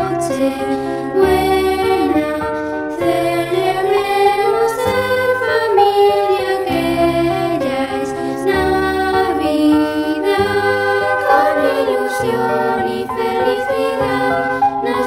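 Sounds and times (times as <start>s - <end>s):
children's choir singing: 10.2s - 15.0s.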